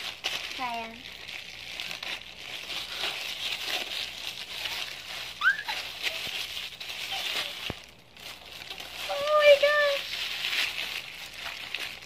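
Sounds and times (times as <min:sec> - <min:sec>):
plastic bag crinkling and tearing: 0:00.0 - 0:12.0
high-pitched vocal squeal: 0:05.4 - 0:06.0.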